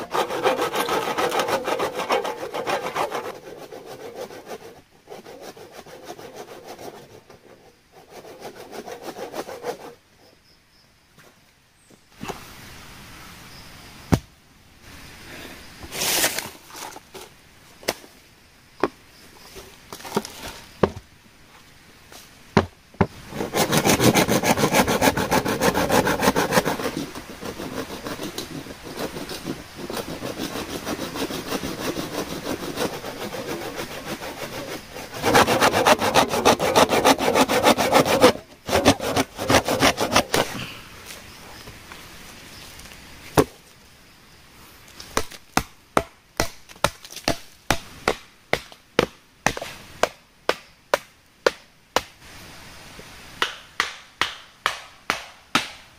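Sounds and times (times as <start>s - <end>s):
hand saw cutting bamboo: 0.0s - 10.0s, 23.0s - 40.7s.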